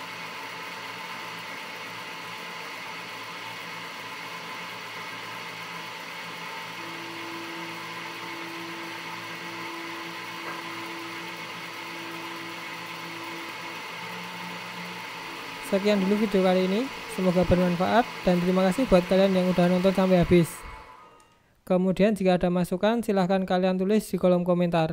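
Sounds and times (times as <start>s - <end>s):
motor hum: 0.0s - 21.4s
steady whine: 4.7s - 21.4s.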